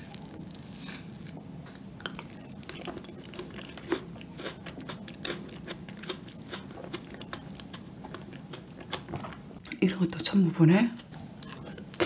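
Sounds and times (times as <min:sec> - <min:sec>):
chewing mouth clicks: 0:02.0 - 0:09.8.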